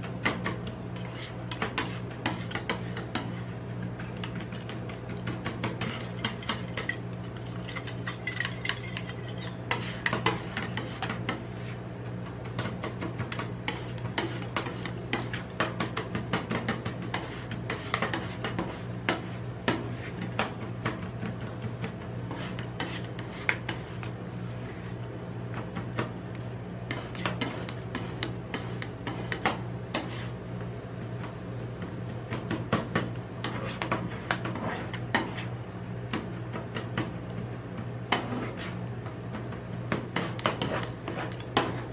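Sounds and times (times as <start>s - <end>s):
metal spatulas clinking and scraping: 6.1s - 9.8s.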